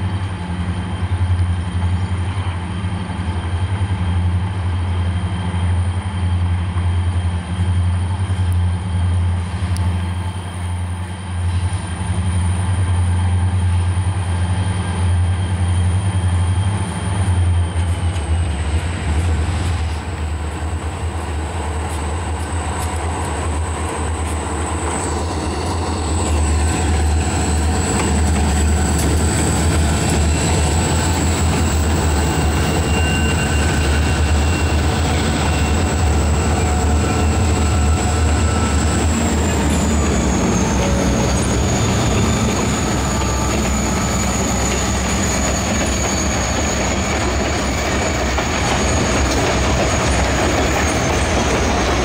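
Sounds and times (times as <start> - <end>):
diesel locomotives rumbling: 0.0 - 52.0
thin high whine: 31.6 - 47.0.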